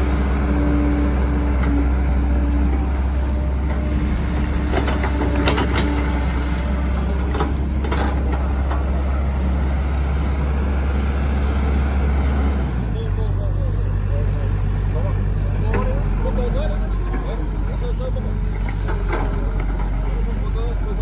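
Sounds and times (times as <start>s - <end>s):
excavator diesel engine droning: 0.0s - 21.0s
metallic clanks of excavator bucket: 4.5s - 6.2s, 7.0s - 8.9s, 18.5s - 20.0s.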